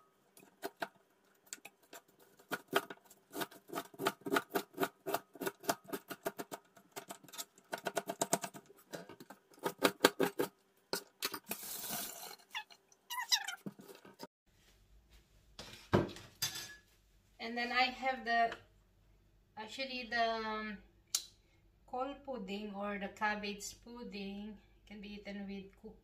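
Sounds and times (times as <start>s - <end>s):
knife chopping cabbage: 2.0s - 8.5s, 9.2s - 10.5s.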